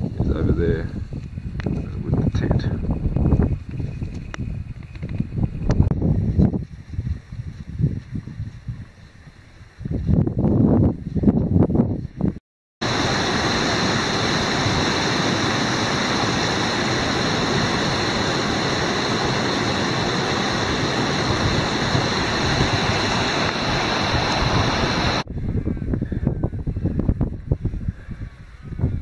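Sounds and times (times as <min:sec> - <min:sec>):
gusty noise: 0:00.0 - 0:29.0
steady rushing noise: 0:12.8 - 0:25.4.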